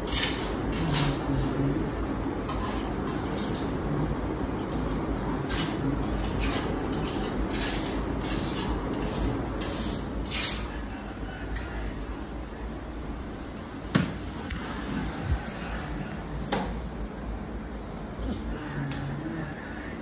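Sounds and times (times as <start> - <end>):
steady low hum: 0.7 - 6.9, 10.8 - 20.0.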